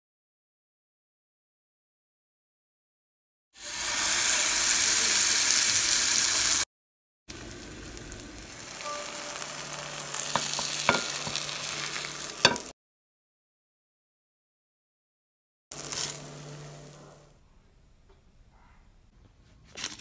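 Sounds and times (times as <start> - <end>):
batter sizzling in a frying pan: 3.6 - 6.7, 7.3 - 12.7, 15.7 - 17.0.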